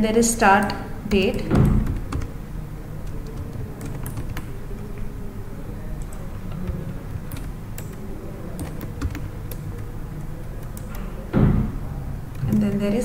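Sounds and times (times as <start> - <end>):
low background hum: 0.0 - 13.0
computer keyboard key clicks: 3.1 - 5.1, 6.0 - 11.2.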